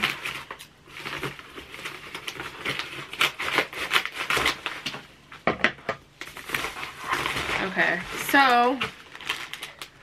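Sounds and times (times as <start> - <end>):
paper mailer crinkling: 6.2 - 10.0.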